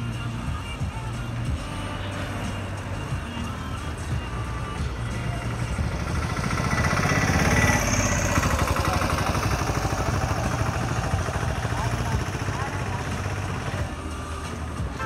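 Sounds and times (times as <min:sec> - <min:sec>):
passing road traffic: 0:00.0 - 0:15.0
small vehicle engine running: 0:00.0 - 0:15.0.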